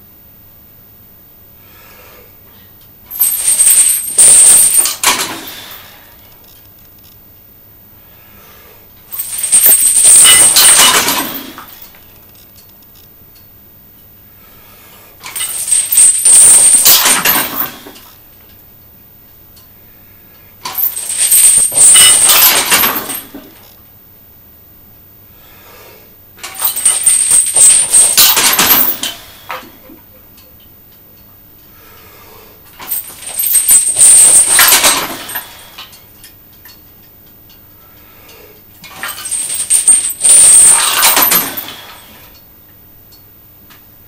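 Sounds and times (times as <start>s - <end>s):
steel chains rattling: 3.1s - 6.2s, 9.1s - 12.4s, 15.2s - 18.2s, 20.7s - 23.8s, 26.4s - 30.5s, 32.7s - 36.0s, 38.8s - 42.4s.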